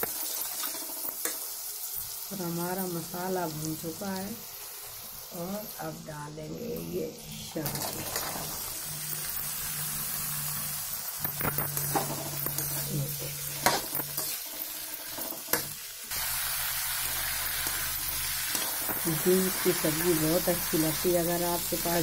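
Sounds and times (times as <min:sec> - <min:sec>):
vegetables sizzling in hot oil: 0:00.0 - 0:22.0.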